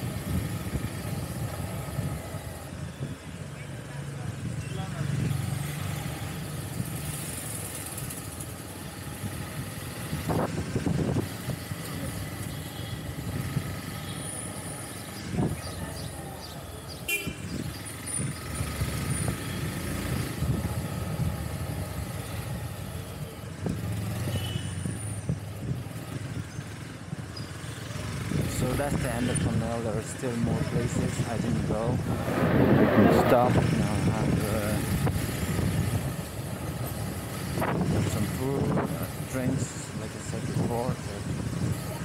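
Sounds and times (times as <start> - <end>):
traffic horns tooting: 16.9 - 17.6, 24.2 - 25.0.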